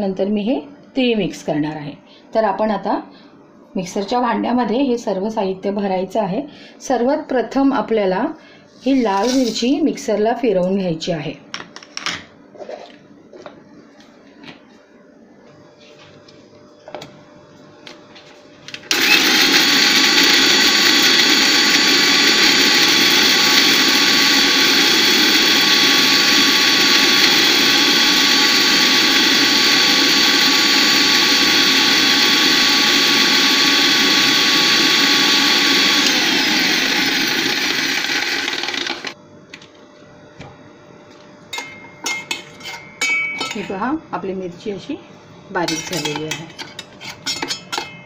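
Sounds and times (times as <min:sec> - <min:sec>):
mixer grinder grinding chilli: 0:08.9 - 0:09.7, 0:18.8 - 0:39.2, 0:45.6 - 0:48.0.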